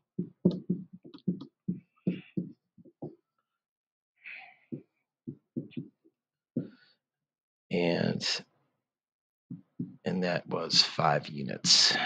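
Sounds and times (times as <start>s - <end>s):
stylus tapping on screen: 0.2s - 3.2s, 4.7s - 6.0s, 9.5s - 10.0s.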